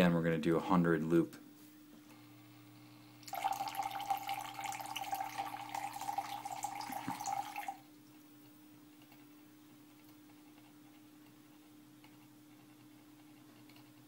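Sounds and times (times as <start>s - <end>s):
liquid splashing into a cup: 3.2s - 7.8s
fountain pump whining: 3.3s - 7.8s.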